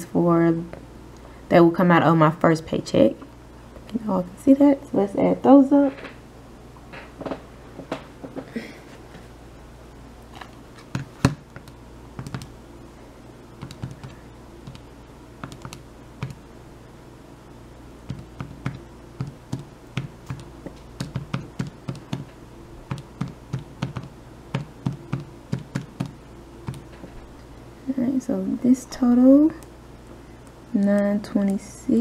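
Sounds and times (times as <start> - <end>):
calculator keys clicking: 13.6 - 14.8, 15.4 - 16.4.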